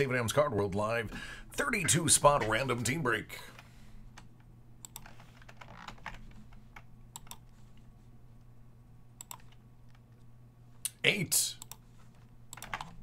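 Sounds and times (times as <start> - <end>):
low steady hum: 0.0 - 13.0
computer input clicks: 7.1 - 7.4, 9.2 - 9.6.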